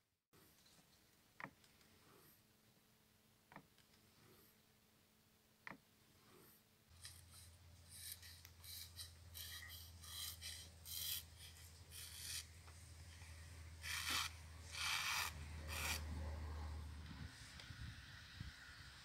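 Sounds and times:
chisel shaving paper: 6.9 - 16.2.

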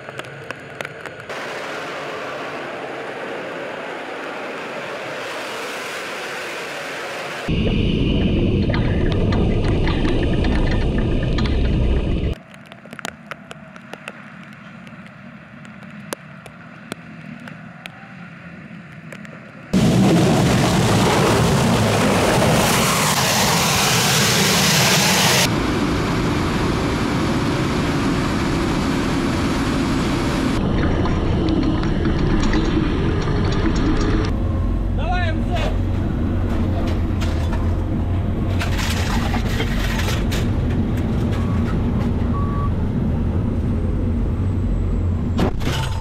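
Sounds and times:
tank engine and track rumble: 7.5 - 46.0
sharp clicks and clanks: 8.6 - 14.2, 30.6 - 34.4.

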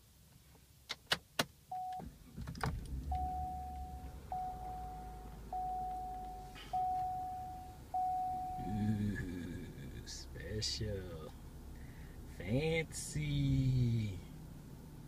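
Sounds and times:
car engine idling: 1.9 - 15.0
single-tone warning chime: 3.1 - 8.8.

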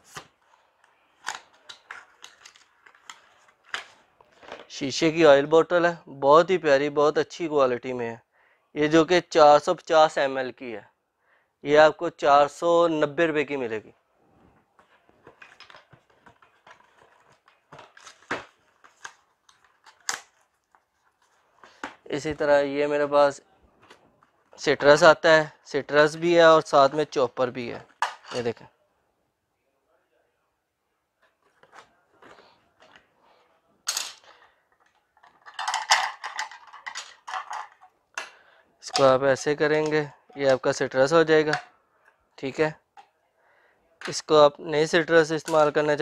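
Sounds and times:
plastic parts clicking and rustling: 0.0 - 4.8, 14.8 - 22.4, 26.6 - 28.6, 33.9 - 42.2
plastic clattering: 14.8 - 22.3, 33.9 - 40.8.

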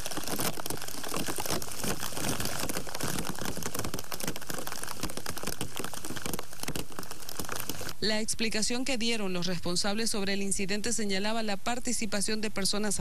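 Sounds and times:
steady rain patter: 0.0 - 10.3.

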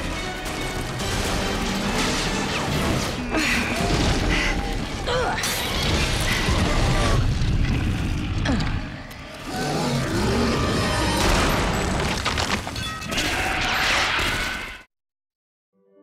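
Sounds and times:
action film music: 0.0 - 12.1.

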